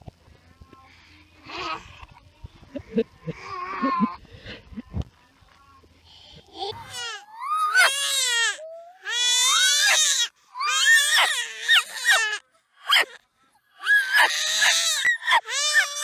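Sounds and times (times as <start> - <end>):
baby squealing cries: 6.8 - 13.2, 13.8 - 16.0.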